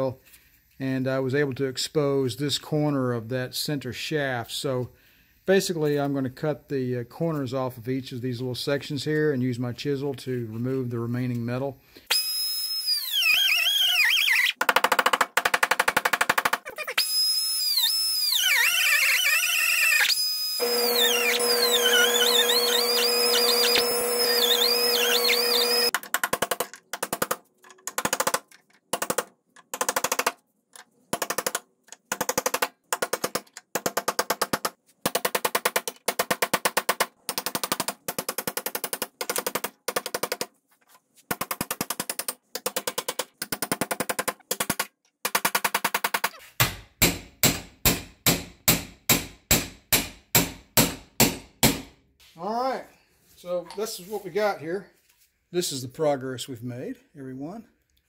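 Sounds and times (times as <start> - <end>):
air cutoff wheel whining: 20.6 - 25.9
rapid metal hammering: 41.3 - 51.9.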